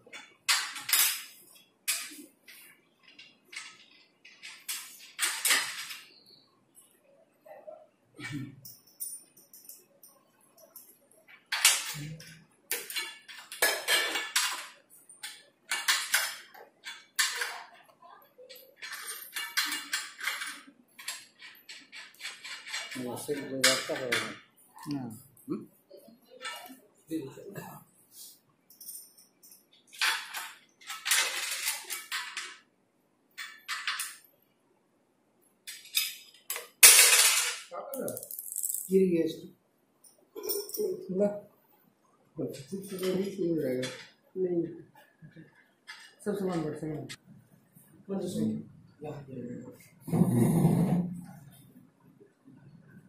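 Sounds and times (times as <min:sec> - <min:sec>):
metal table legs clinking: 0:00.0 - 0:06.1, 0:08.6 - 0:17.8, 0:18.4 - 0:24.4, 0:26.4 - 0:26.8, 0:28.7 - 0:32.6, 0:33.4 - 0:34.3, 0:35.7 - 0:39.0.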